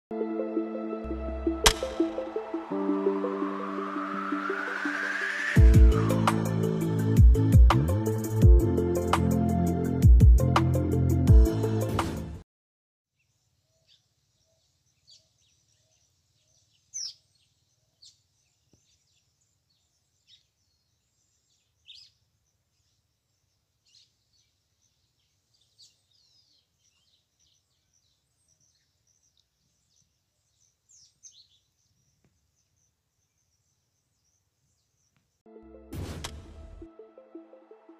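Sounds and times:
bird chirps and calls: 13.2s - 35.2s.

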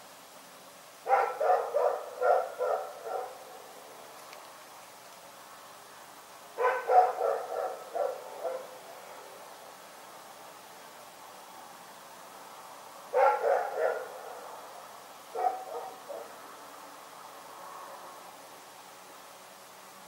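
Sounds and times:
dog barking: 1.0s - 3.4s, 6.6s - 8.8s, 13.1s - 14.4s, 15.3s - 16.4s.

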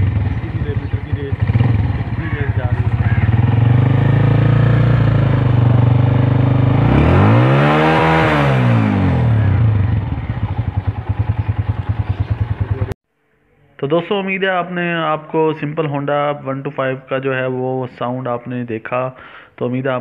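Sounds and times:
motorcycle engine idling and revving: 0.0s - 13.0s.

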